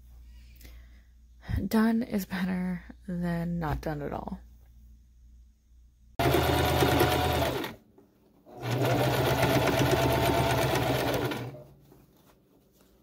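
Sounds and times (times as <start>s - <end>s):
sewing machine stitching: 6.2s - 7.8s, 8.5s - 11.7s.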